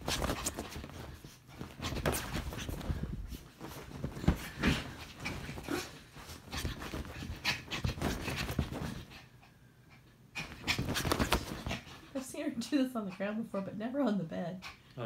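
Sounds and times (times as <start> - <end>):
dog scrabbling on bedding: 0.0 - 9.3, 10.4 - 12.2
dog panting: 0.0 - 14.9.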